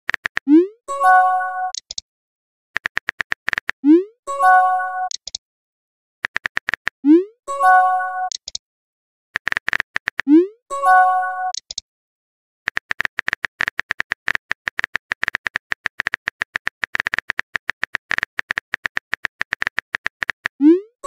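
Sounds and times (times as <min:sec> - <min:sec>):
keyboard typing clicks: 0:00.1 - 0:00.6, 0:01.7 - 0:02.0, 0:02.8 - 0:03.9, 0:05.0 - 0:05.4, 0:06.2 - 0:07.0, 0:08.2 - 0:08.6, 0:09.4 - 0:10.4, 0:11.4 - 0:11.8, 0:12.7 - 0:20.6.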